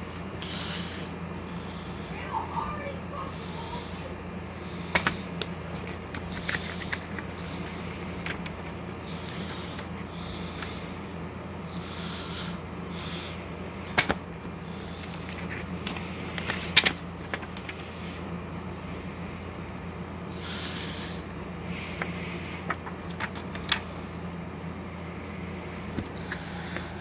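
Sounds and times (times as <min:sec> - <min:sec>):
steady low hum: 0:00.0 - 0:27.0
paper pages flipping: 0:04.9 - 0:10.7, 0:13.9 - 0:17.8, 0:22.0 - 0:23.9.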